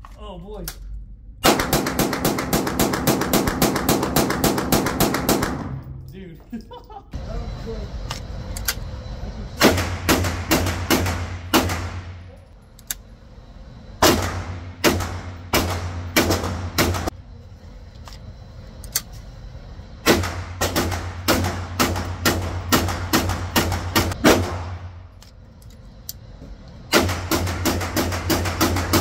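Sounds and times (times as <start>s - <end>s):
pistol shots with room echo: 1.4s - 6.0s, 9.6s - 12.3s, 14.0s - 17.1s, 20.0s - 24.9s, 26.9s - 29.0s.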